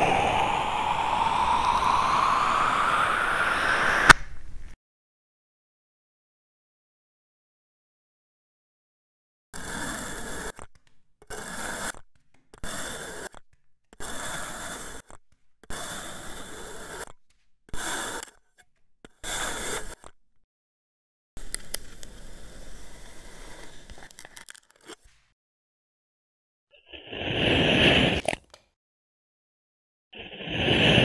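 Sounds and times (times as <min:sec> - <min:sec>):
knife cutting through sand: 0:09.6 - 0:20.2, 0:26.9 - 0:28.4.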